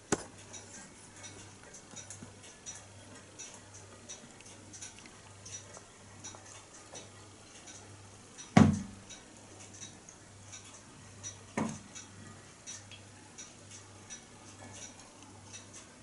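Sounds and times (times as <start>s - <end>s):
pop-pop boat faint ticking: 0.0s - 16.0s.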